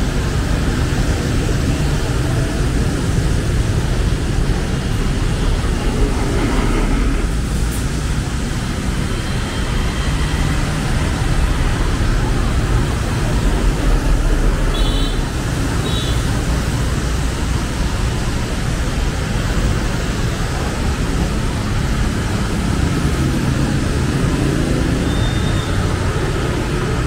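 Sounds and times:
traffic on a wet road: 0.0s - 27.0s
short high beeps: 25.0s - 25.8s.

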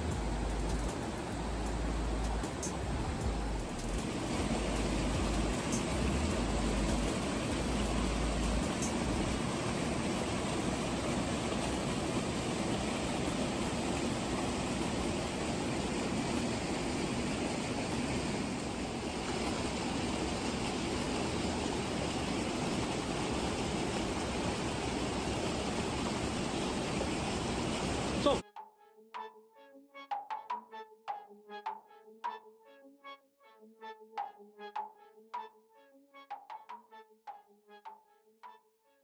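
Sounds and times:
stream rushing over rocks: 0.0s - 28.4s.

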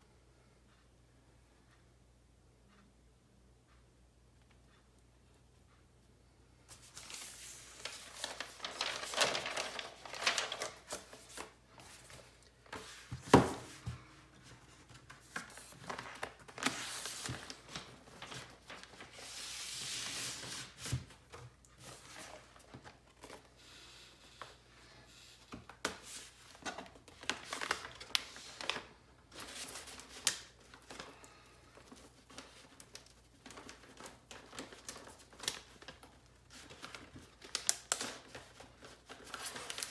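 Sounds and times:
paper sleeve rustling and scraping: 6.7s - 13.8s, 14.7s - 21.1s.

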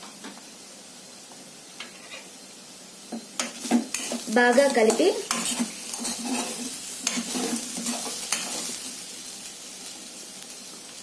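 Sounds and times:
soft sizzle from hot pan: 0.0s - 11.0s
metal spoon scraping steel pot: 3.9s - 8.7s.

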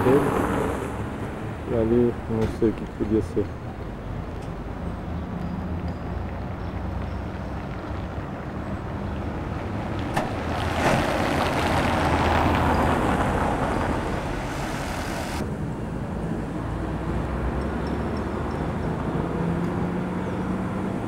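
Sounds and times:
vehicle passing: 6.3s - 21.0s.

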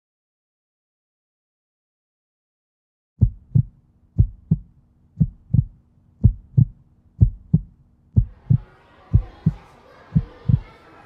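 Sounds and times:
heartbeat thumps: 3.2s - 9.6s, 10.2s - 10.7s
faint low hum: 3.2s - 11.0s.

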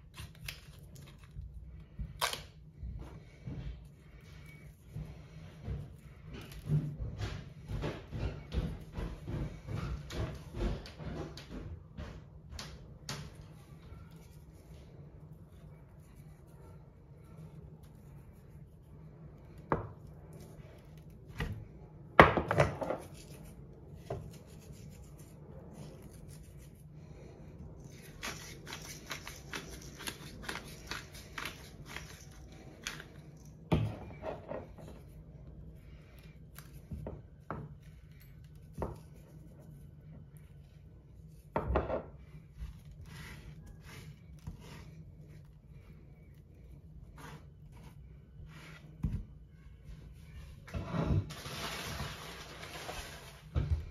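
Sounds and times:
hands rubbing meat: 23.0s - 33.7s.

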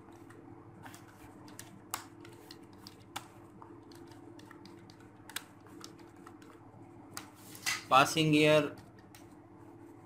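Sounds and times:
keyboard typing: 0.1s - 6.6s.

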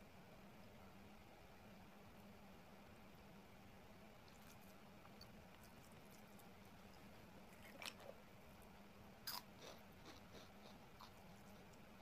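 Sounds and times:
soft chewing: 4.1s - 12.0s
crisp crunches: 7.5s - 8.2s.

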